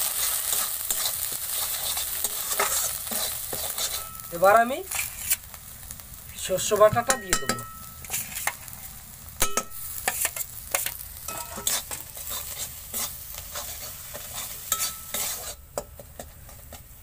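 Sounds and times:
metal spatula scraping pan: 0.0 - 5.4, 7.0 - 8.8, 9.4 - 16.8
hot oil sizzling: 0.0 - 17.0.

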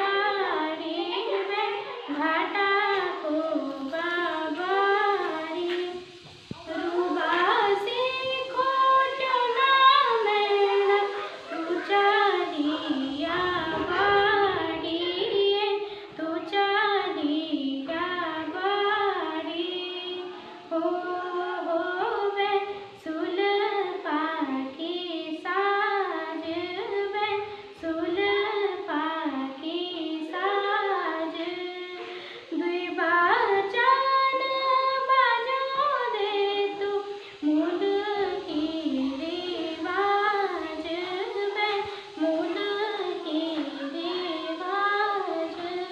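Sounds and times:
girl singing solo: 0.0 - 45.9.

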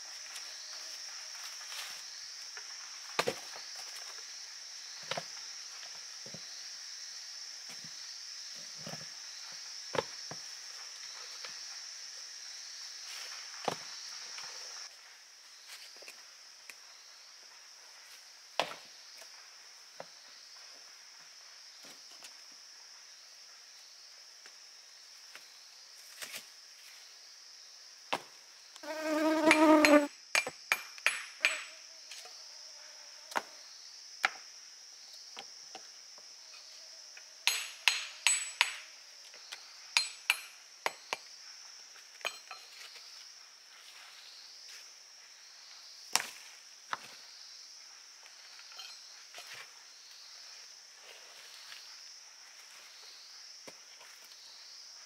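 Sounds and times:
high insect drone: 0.0 - 55.0
hammer knocking stones: 30.4 - 31.7, 37.4 - 38.9.

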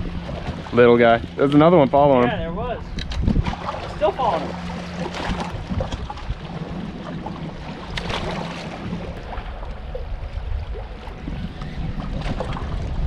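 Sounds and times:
water lapping around boat: 0.0 - 13.0
wind rumbling on microphone: 0.0 - 13.0.

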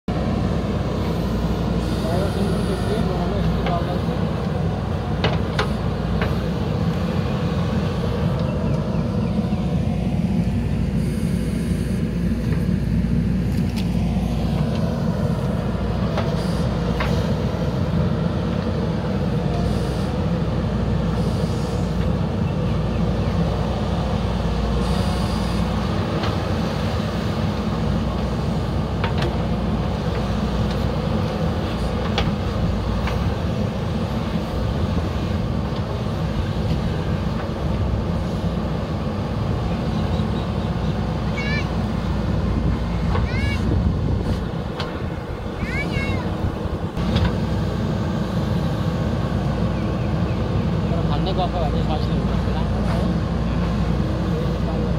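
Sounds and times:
diesel engine running under load: 0.1 - 54.9.

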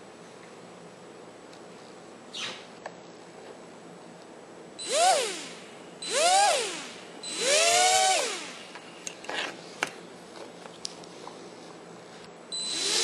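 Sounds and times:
quadcopter motors whining: 4.8 - 8.7, 12.6 - 13.0.

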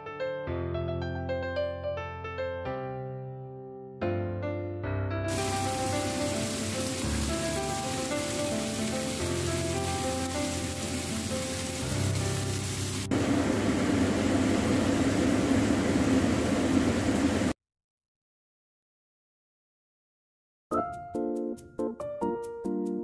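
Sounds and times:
soft piano music: 0.0 - 13.2, 20.7 - 23.0
meat sizzling in a frying pan: 5.3 - 17.4.

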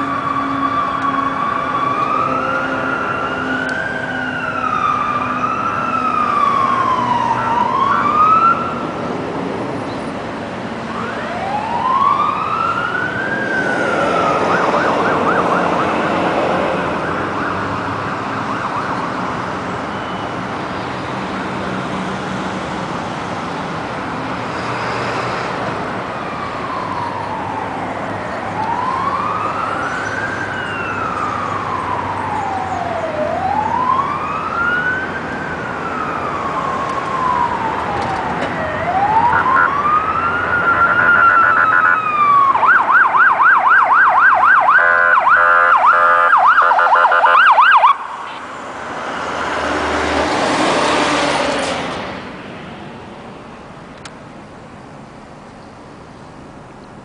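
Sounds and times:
fire truck siren wailing: 0.0 - 9.4, 10.6 - 24.4, 25.6 - 51.7
siren fast yelp: 38.6 - 48.4.

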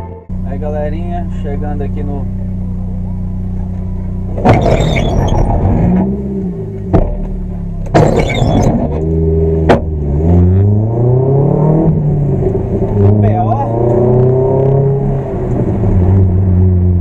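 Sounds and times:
car engine revving: 0.3 - 17.0.

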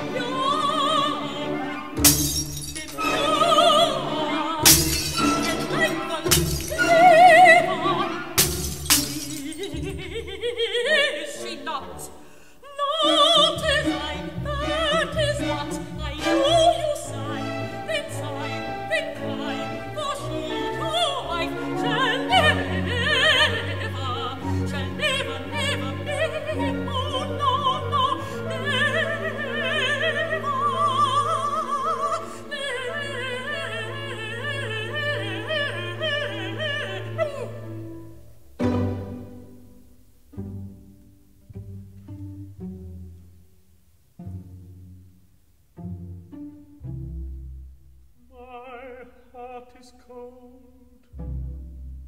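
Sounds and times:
operatic singing: 0.0 - 38.0, 48.2 - 51.1
orchestra: 0.0 - 52.0.

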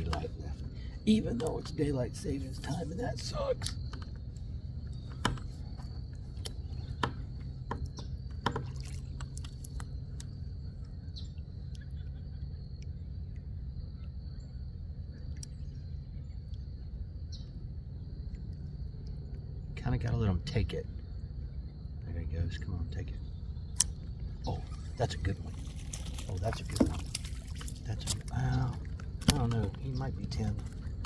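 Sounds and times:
insects trilling: 0.0 - 31.0
low rumble: 0.0 - 31.0
sharp clicks: 23.7 - 24.2.

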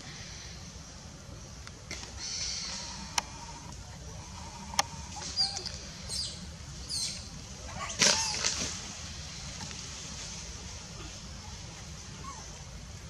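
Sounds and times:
monkeys squeaking: 5.2 - 6.3.

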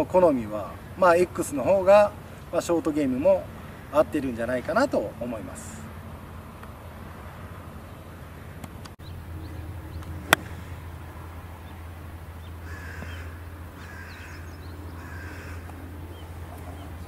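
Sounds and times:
steady low hum: 5.0 - 17.0
golf club striking ball: 10.0 - 10.8
crows cawing: 12.6 - 16.2.

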